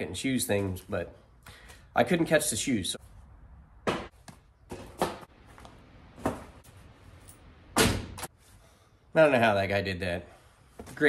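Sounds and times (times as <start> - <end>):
shoes thumping and slapping: 3.8 - 6.6, 7.8 - 8.3.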